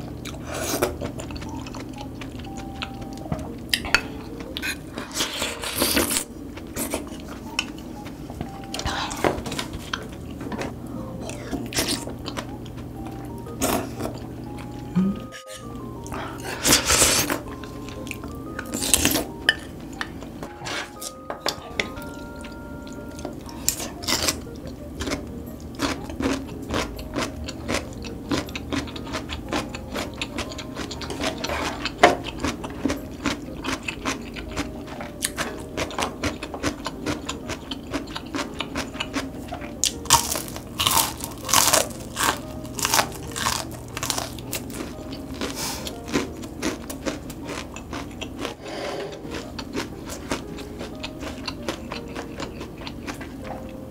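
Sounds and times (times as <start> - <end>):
crunching and chewing fried food: 0.0 - 20.4, 21.8 - 53.9
slurping soup: 48.5 - 49.5.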